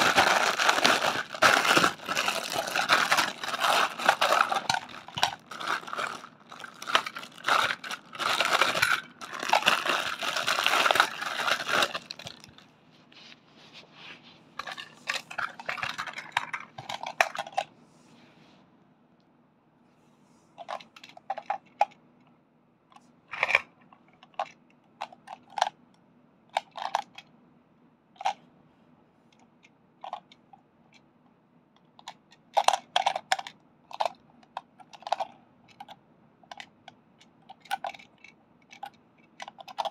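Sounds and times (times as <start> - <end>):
plastic bag crinkling: 0.0 - 12.7.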